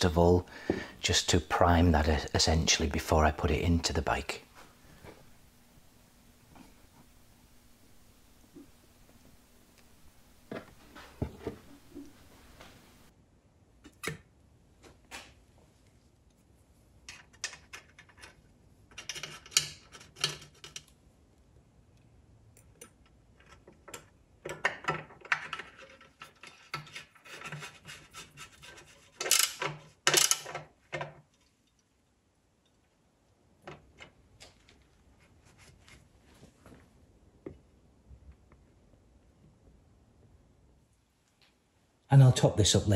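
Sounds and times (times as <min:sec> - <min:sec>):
metal rubbing and scraping: 0:25.6 - 0:29.6.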